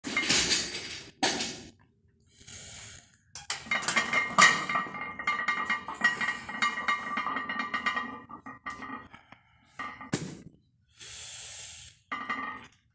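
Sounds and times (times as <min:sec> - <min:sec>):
weight plates clinking: 0:03.4 - 0:09.2, 0:12.1 - 0:12.8.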